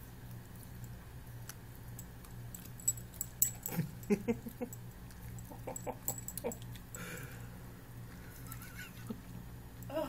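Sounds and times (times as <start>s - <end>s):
dog licking and chewing: 0.2s - 3.8s, 4.5s - 6.9s.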